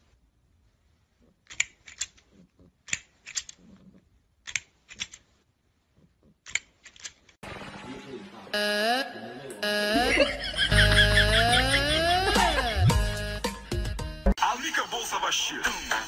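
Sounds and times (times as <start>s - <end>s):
music: 10.7s - 14.4s.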